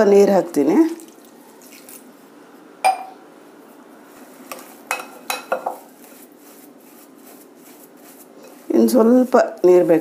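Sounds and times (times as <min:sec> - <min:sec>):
spoon clinking against glass bowl: 0:02.8 - 0:03.2.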